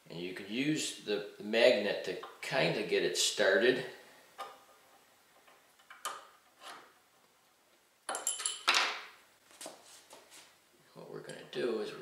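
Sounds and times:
sharp metallic clinks: 8.1 - 8.8.

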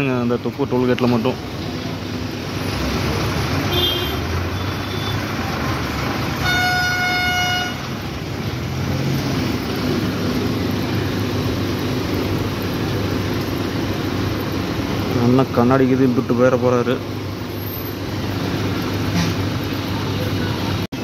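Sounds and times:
engine and traffic noise: 0.0 - 21.0
vehicle horn honking: 3.7 - 5.2, 6.4 - 8.0.

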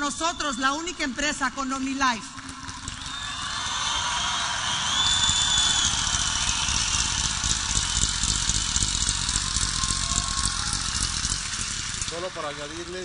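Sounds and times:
crowd applauding and cheering: 0.0 - 13.0
short piercing whistle: 3.0 - 8.0.

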